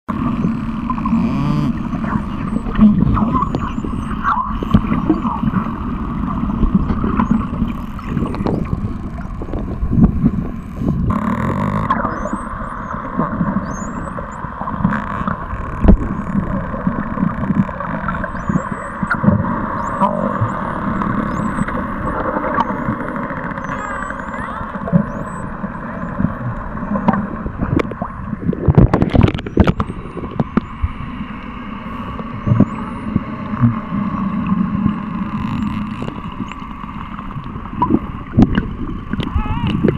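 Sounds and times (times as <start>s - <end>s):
low underwater hum: 0.0s - 39.9s
underwater clicks and knocks: 6.6s - 12.4s, 14.7s - 23.9s, 26.2s - 30.8s, 37.3s - 39.9s.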